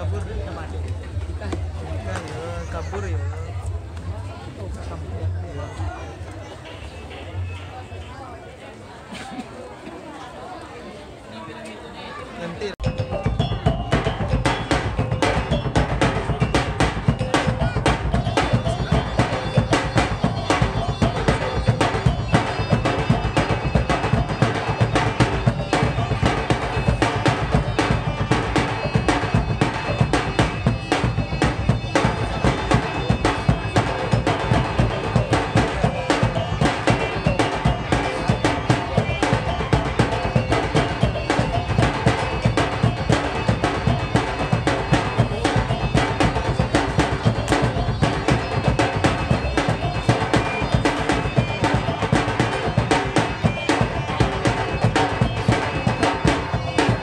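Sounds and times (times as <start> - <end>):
drums beating fast rhythm: 12.6 - 57.0
reedy wind instrument melody: 12.8 - 57.0.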